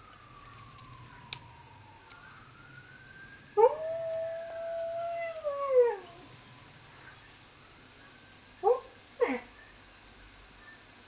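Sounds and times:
dog howling: 3.6 - 6.4.

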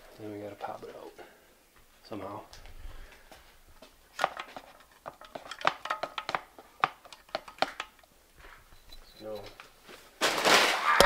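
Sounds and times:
hand tools clinking on metal: 4.2 - 8.1.

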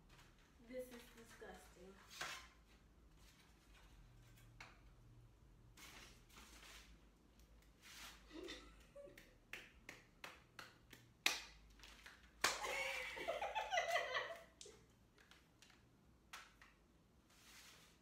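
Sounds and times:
hand claps and snaps: 8.8 - 12.7, 14.6 - 16.8
women laughing: 12.6 - 14.5.

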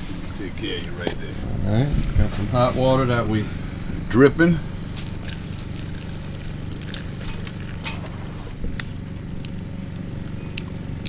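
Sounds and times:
steady low hum: 0.0 - 11.0
filter clicks and rustles: 5.0 - 9.6.

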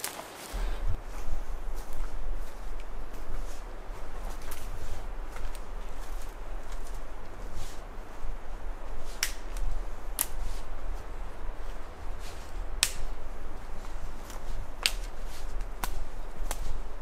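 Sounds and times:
footsteps on forest floor: 0.0 - 17.0
low microphone rumble: 0.5 - 17.0
sharp snaps: 0.5 - 17.0.

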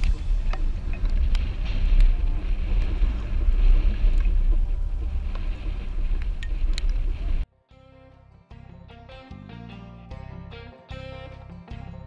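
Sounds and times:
wind buffeting microphone: 0.0 - 7.5.

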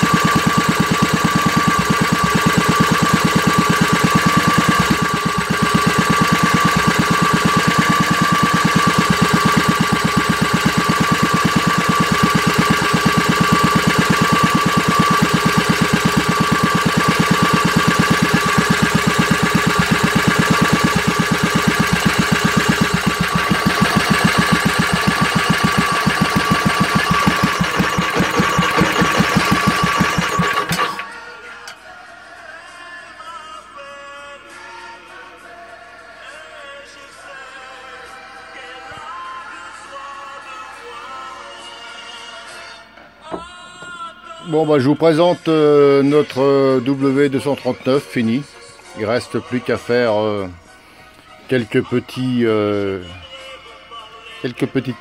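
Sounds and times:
single-cylinder engine running: 0.0 - 31.2.

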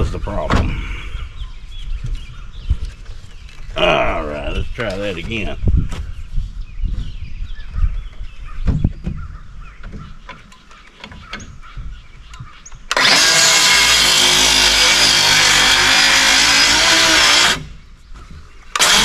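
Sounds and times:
circular saw cutting wood: 12.9 - 17.8, 18.8 - 19.0.

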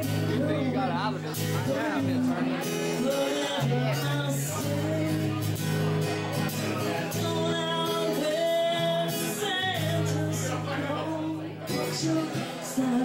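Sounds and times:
acoustic guitar: 0.0 - 13.0
woman singing: 1.6 - 5.5, 7.0 - 13.0.

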